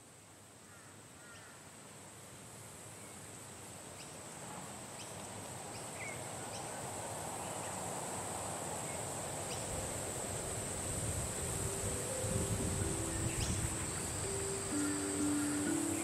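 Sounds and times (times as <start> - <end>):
high insect drone: 2.8 - 16.0
bird chirps: 12.1 - 16.0.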